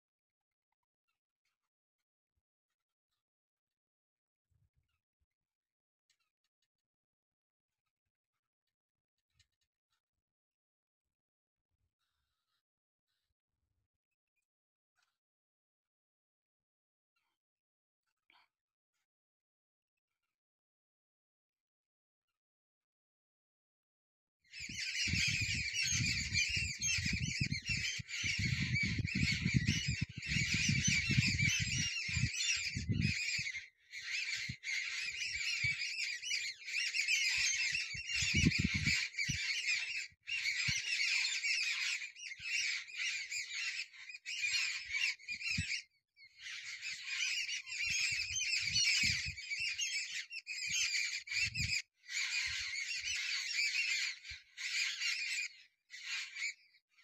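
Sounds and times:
birds chattering: 0:24.6 - 0:56.3.

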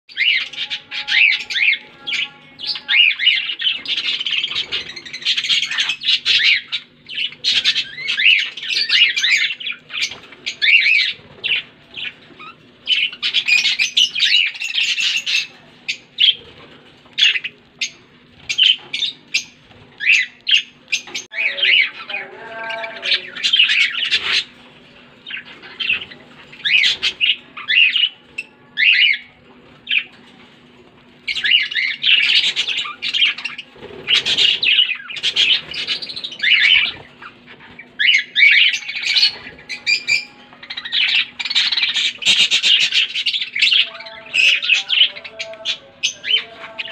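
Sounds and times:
budgerigars chirping: 0:00.1 - 0:24.6, 0:25.2 - 0:30.2, 0:31.2 - 0:46.9.

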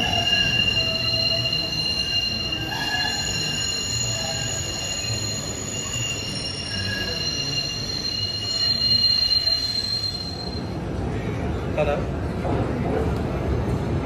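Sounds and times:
train wheels squealing on rails: 0:00.0 - 0:11.6.

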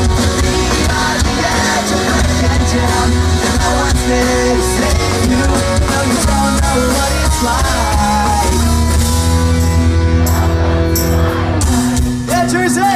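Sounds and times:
pop-punk band playing live: 0:00.0 - 0:12.9
person singing: 0:00.1 - 0:09.0.

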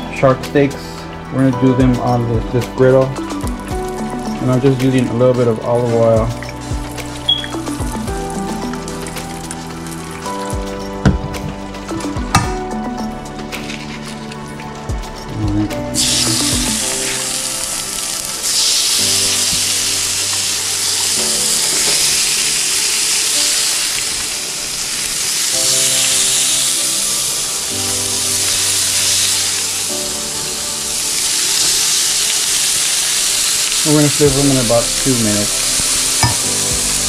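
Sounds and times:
background music: 0:00.0 - 0:37.0
low knocks: 0:11.0 - 0:11.6
fish sizzling in oil on griddle: 0:15.9 - 0:37.0.

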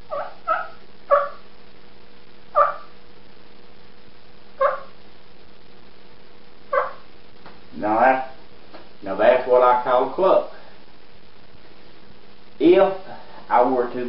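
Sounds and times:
turkey call clucks: 0:00.1 - 0:01.4, 0:02.6 - 0:02.9, 0:04.6 - 0:05.0, 0:06.7 - 0:07.0.

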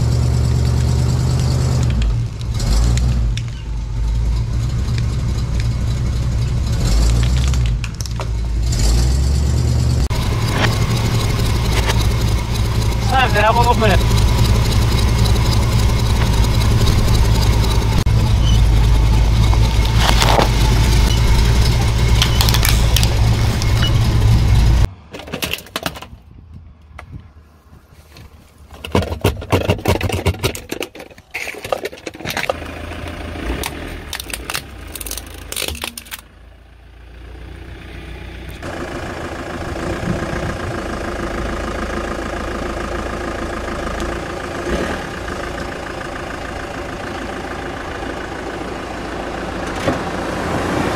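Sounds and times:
car engine idling: 0:00.0 - 0:24.9, 0:32.3 - 0:50.8
engine running low: 0:00.0 - 0:25.2, 0:26.6 - 0:50.9
plastic pumpkins cracking under tyre: 0:28.8 - 0:36.2.

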